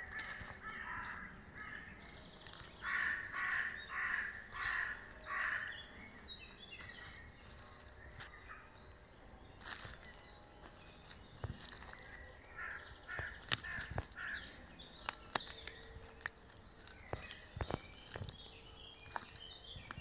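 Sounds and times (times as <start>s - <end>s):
bird harsh calls: 0.0s - 7.4s, 11.6s - 15.5s.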